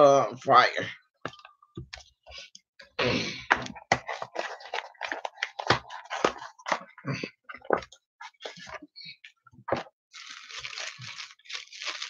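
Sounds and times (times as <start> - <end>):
containers and packaging handled: 3.5 - 12.0.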